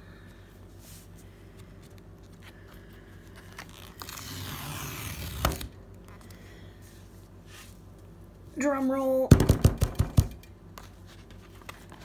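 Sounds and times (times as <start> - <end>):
tear strip ripping: 3.5 - 5.8.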